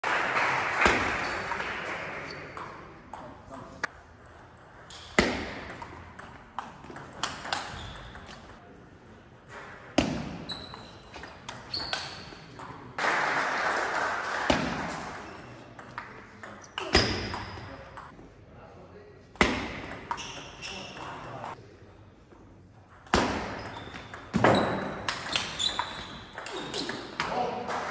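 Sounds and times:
short high squeaks: 10.5 - 12.3, 23.6 - 27.0.

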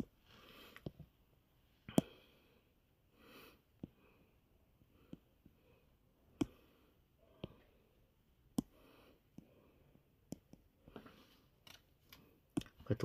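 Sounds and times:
stylus tapping on a tablet screen: 0.0 - 0.2, 1.8 - 2.2, 3.8 - 4.0, 5.0 - 5.6, 6.3 - 6.7, 8.4 - 9.5, 10.2 - 10.7.

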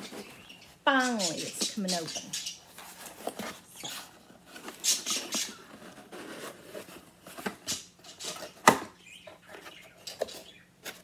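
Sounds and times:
cardboard box scraping: 2.8 - 7.6.

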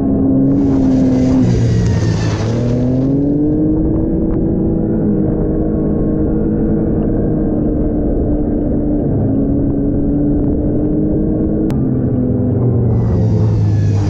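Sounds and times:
snowmobile engine running: 0.0 - 14.0
hiss: 0.5 - 2.8.

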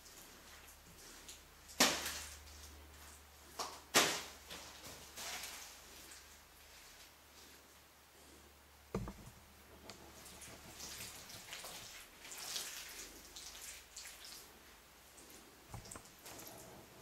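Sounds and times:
sharp knock: 9.0 - 9.3.

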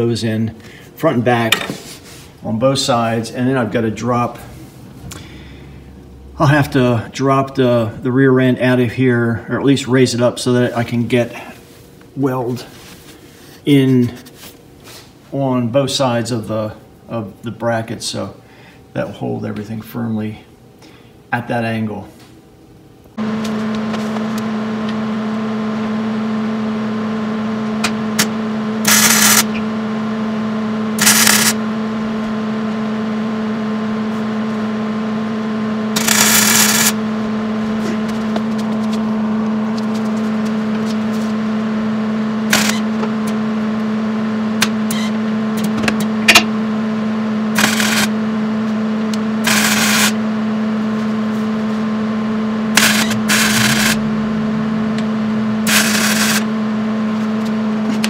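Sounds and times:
welder hum: 22.9 - 58.0
welding arc crackle: 27.8 - 29.7, 30.9 - 32.2, 35.9 - 37.0, 42.5 - 43.4, 47.5 - 48.2, 49.1 - 50.2, 52.7 - 58.0.

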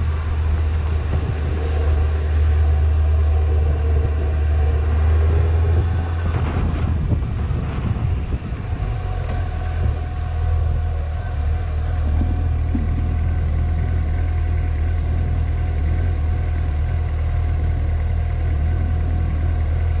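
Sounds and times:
motorcycle engine idling: 8.6 - 20.0.

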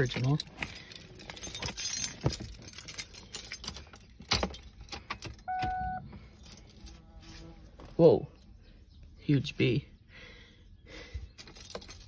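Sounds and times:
car keys jangling: 0.0 - 7.1, 11.4 - 12.0
short electronic warning chime: 5.5 - 6.0.

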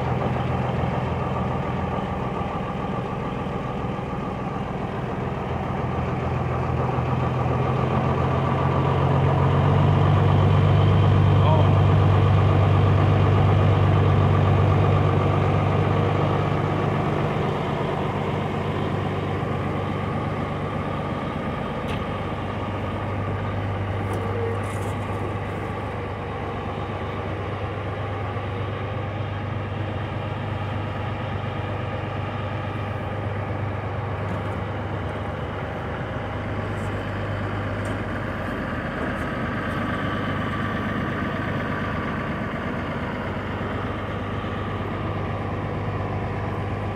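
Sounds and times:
diesel tractor engine idling: 0.0 - 46.9.

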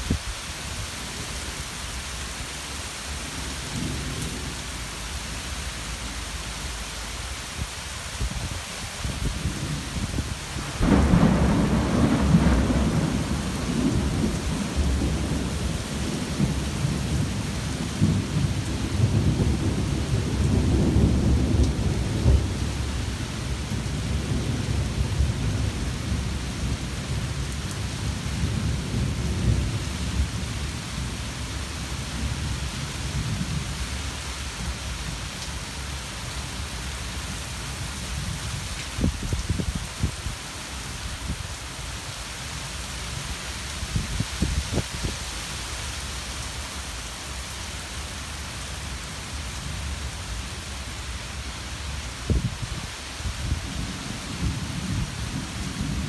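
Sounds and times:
heavy rain: 0.0 - 56.0
thunderclap with rolling rumble: 8.2 - 31.2, 52.3 - 56.0.

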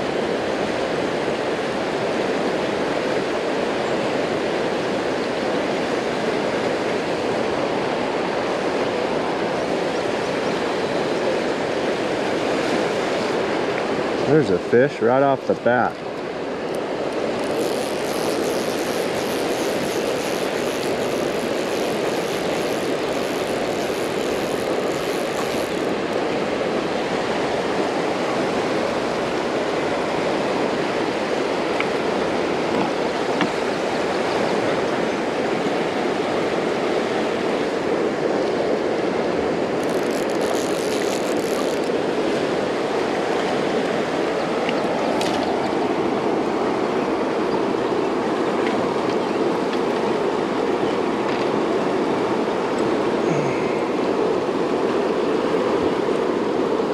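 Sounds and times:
river rushing over rocks: 0.0 - 56.9.

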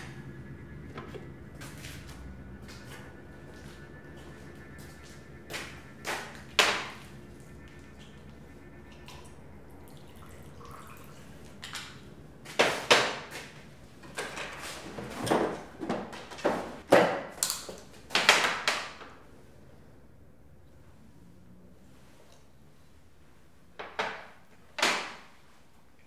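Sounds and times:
footsteps in a room: 0.1 - 9.6.

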